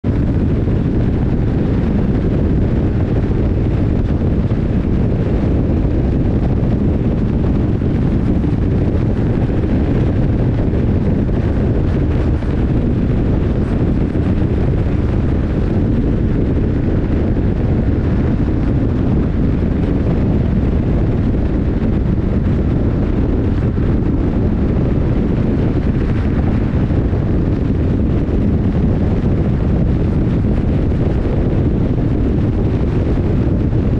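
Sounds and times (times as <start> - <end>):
motorcycle engine running: 0.0 - 33.9
wind buffeting microphone: 0.0 - 33.9.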